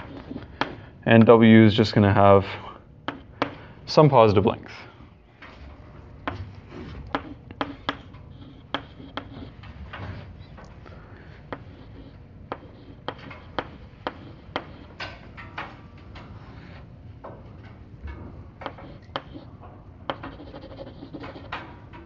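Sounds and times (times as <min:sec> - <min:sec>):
chalk scratching: 0:00.0 - 0:00.8, 0:06.6 - 0:10.5, 0:11.4 - 0:15.0, 0:18.6 - 0:19.5, 0:20.1 - 0:21.6
chalk tapping on a blackboard: 0:00.0 - 0:01.3, 0:03.0 - 0:03.6, 0:06.2 - 0:09.7, 0:11.5 - 0:15.2, 0:18.6 - 0:19.5, 0:20.1 - 0:21.6.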